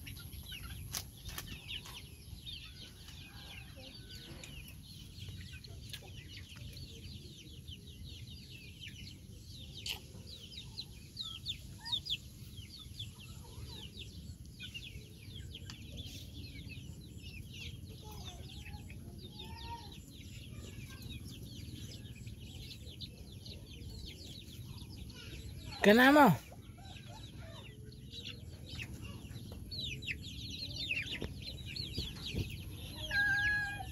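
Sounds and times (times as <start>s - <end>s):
chickens chirping and peeping: 0.0s - 33.9s.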